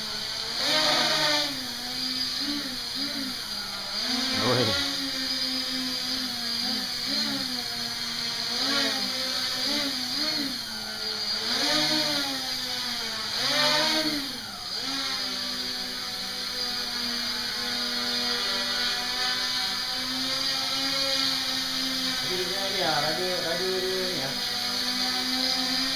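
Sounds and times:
quadcopter propellers whining: 0.0 - 25.9.

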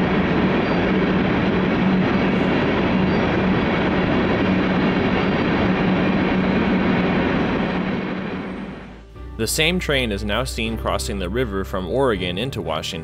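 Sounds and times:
train wheels rumbling on track: 0.0 - 9.0
steady low hum: 0.0 - 9.5.

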